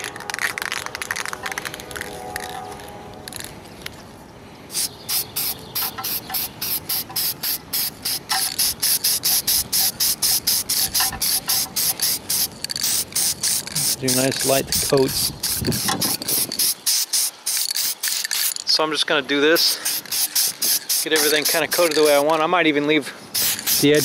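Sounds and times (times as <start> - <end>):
spray can hissing in bursts: 4.7 - 18.6, 19.6 - 22.4, 23.3 - 24.0.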